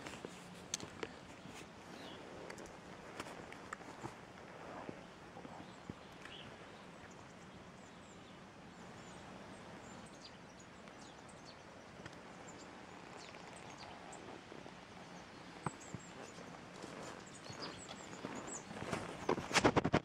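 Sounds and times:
small birds chirping: 0.0s - 19.5s
faint outdoor background noise: 0.0s - 20.0s.

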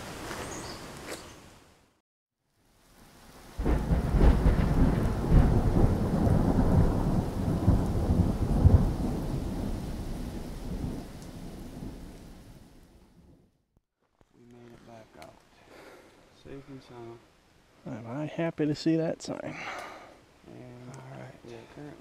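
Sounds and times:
steady rain: 0.0s - 13.2s, 14.6s - 22.0s
thunder rumbling: 3.5s - 13.4s.

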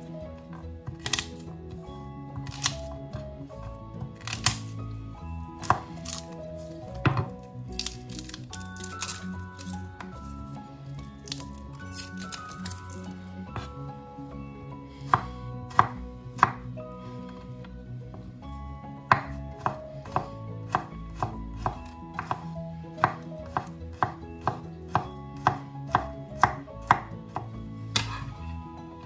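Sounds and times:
knife chopping on wooden board: 0.8s - 1.4s, 5.6s - 6.2s, 15.1s - 16.6s, 19.1s - 28.3s.

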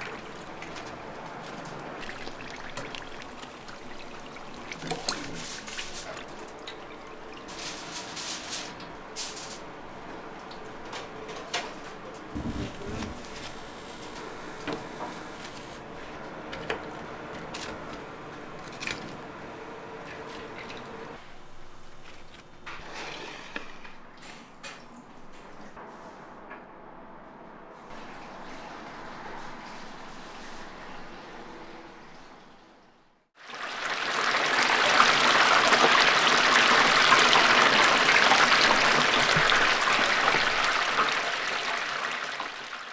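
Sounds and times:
food deep-frying in hot oil: 0.0s - 9.7s, 33.4s - 42.9s.

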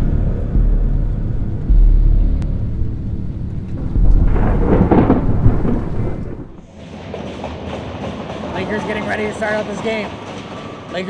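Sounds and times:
thunder rumbling: 0.0s - 7.2s
crackling thunder crash: 3.1s - 7.0s.

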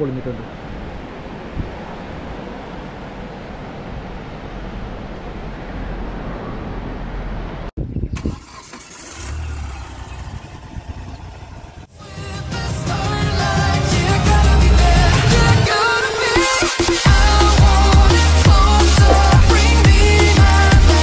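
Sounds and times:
car engine running: 8.2s - 11.9s, 17.1s - 21.0s
music: 11.9s - 21.0s
river rushing: 13.3s - 21.0s.

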